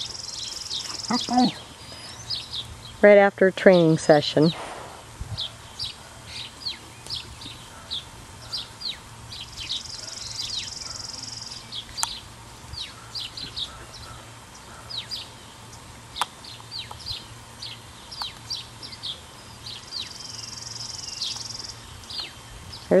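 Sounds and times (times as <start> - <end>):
buzzy bird trill: 0.0 - 3.1, 5.4 - 23.0
small birds chirping: 0.0 - 23.0
sharp clicks: 12.0 - 12.2.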